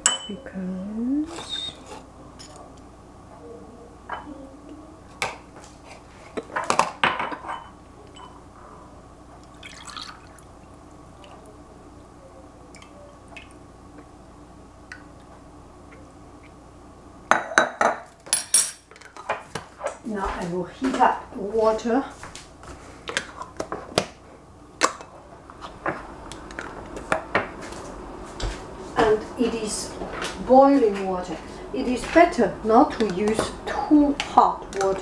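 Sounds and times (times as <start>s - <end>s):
kitchenware clinking on counter: 0.0s - 0.4s, 17.3s - 19.4s
milk pouring into glass jar: 9.5s - 10.4s.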